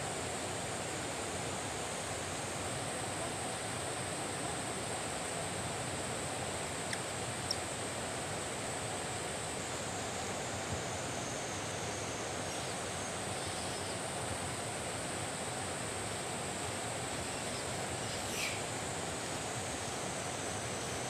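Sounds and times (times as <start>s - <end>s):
faint short ticks: 6.9s - 7.6s.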